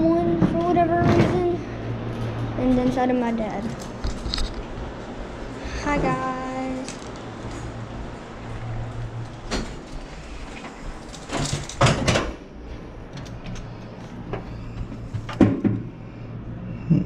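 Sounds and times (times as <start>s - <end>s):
low hum: 0.0s - 17.0s
handling noises and clicks: 3.7s - 4.8s, 6.8s - 7.7s.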